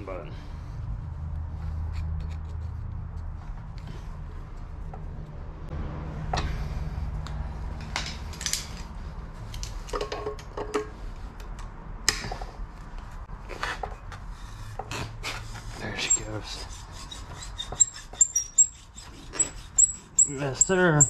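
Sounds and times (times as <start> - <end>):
steel parts clinking and scraping: 1.8 - 3.4, 7.8 - 11.1, 15.6 - 21.0.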